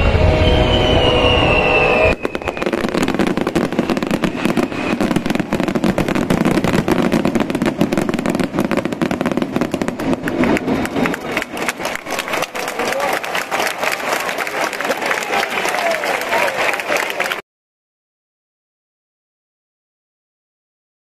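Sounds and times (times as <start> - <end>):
fireworks crackling and popping: 0.8 - 14.8.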